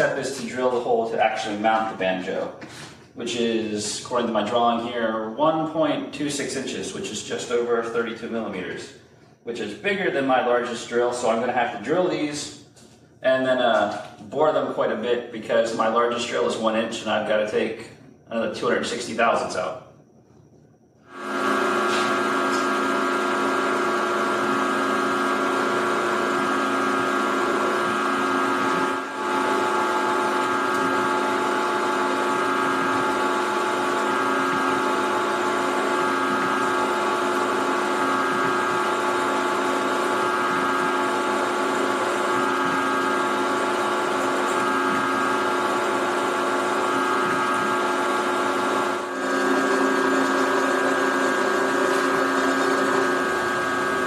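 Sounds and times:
milling machine whine: 18.6 - 54.0
drill cutting steel: 21.1 - 54.0.

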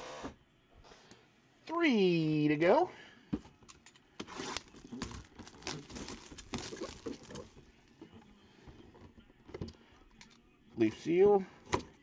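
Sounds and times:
plastic wrap crinkling: 4.3 - 7.6.

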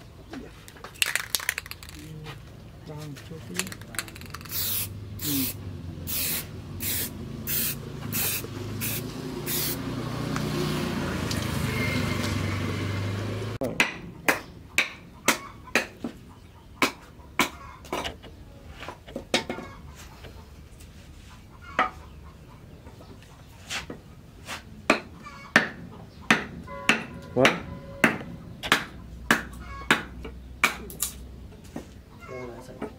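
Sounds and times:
aerosol spray can hissing: 4.2 - 9.8.

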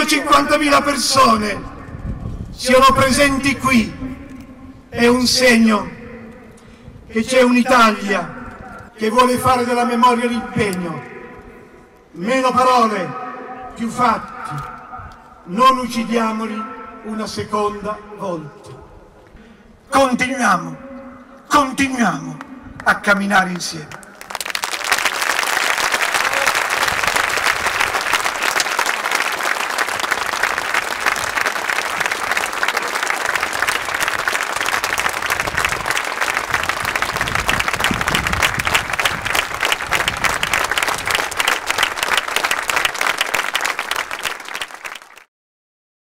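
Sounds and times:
crowd applauding: 24.1 - 45.3.

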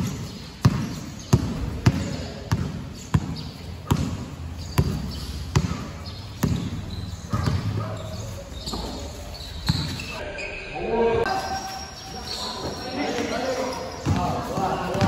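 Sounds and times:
basketball bouncing on gym floor: 0.0 - 10.1, 13.9 - 15.0.

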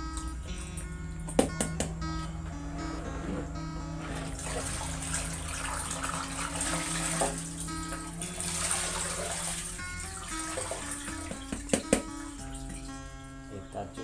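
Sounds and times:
background music: 0.0 - 14.0
water pouring and splashing into bowl: 8.3 - 11.0.

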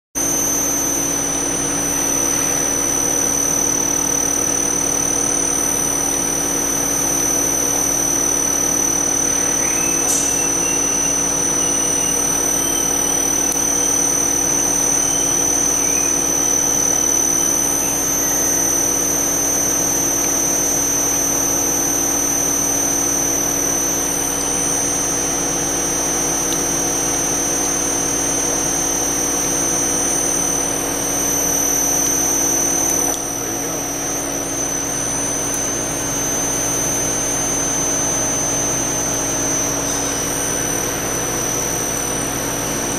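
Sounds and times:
extruder machine humming and whining: 0.2 - 42.9
faint squeal: 0.2 - 42.9.

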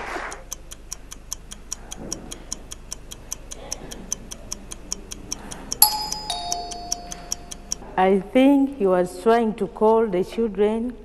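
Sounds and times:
countdown timer ticking: 5.8 - 7.8.

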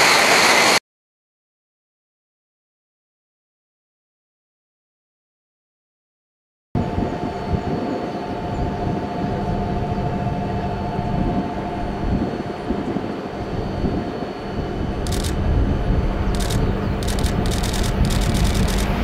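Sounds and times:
bullet train rushing rumble: 6.8 - 19.0
constant humming tone: 6.8 - 19.0.

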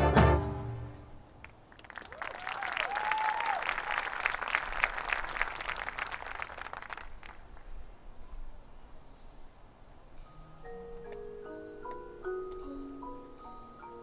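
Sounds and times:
audience applauding and cheering: 1.4 - 7.6
whoops: 2.0 - 4.1.

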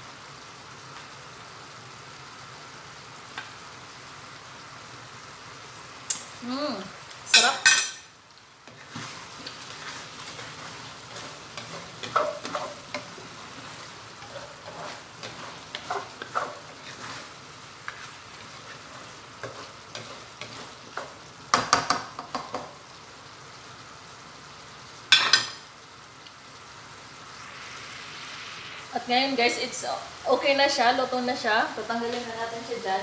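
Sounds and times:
sauce sizzling: 0.0 - 33.0
spatula scraping a wok: 8.6 - 21.2.

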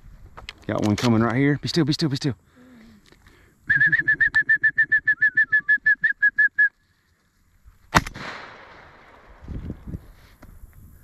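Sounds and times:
shotgun shot: 7.9 - 9.4.

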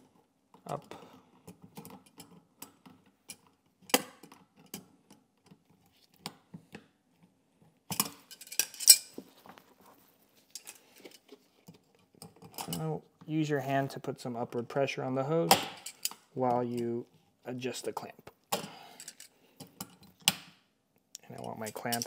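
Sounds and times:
pliers clinking on metal clamp: 7.9 - 9.1, 21.2 - 22.0.

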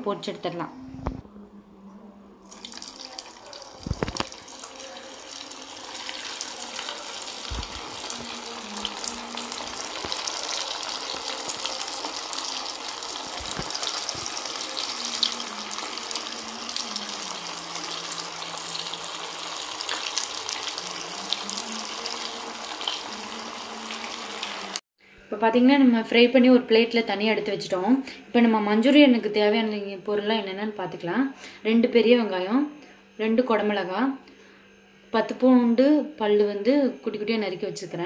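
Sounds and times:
bread deep-frying in oil: 2.5 - 24.8.

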